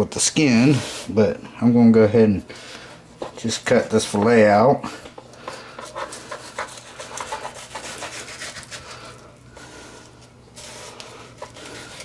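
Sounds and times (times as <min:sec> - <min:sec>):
knife scraping fish skin: 0:05.8 - 0:09.1.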